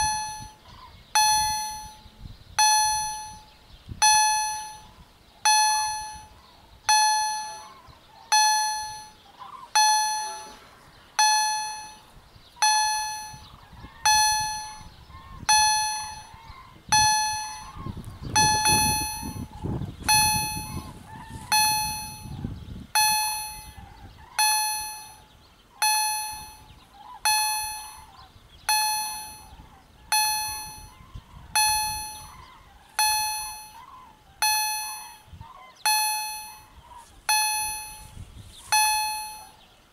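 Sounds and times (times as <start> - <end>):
level crossing bell ringing: 0.0 - 0.6, 1.2 - 9.2, 9.8 - 10.6, 11.2 - 17.8, 18.4 - 22.4, 23.0 - 23.8, 24.4 - 28.1, 28.7 - 31.0, 31.6 - 32.4, 33.0 - 33.8, 34.4 - 35.3, 35.9 - 39.6.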